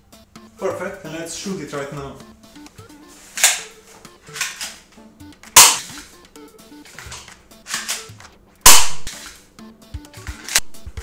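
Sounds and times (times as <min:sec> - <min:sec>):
airsoft pistol shots: 0:03.4 - 0:03.7, 0:05.6 - 0:06.0, 0:07.7 - 0:09.3.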